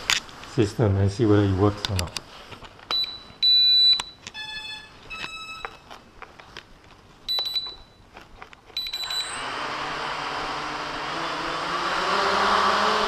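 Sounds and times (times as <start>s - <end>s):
short electronic beeps: 2.9s - 5.9s, 7.3s - 8.0s, 8.8s - 9.4s
quadcopter motors buzzing: 9.3s - 13.0s.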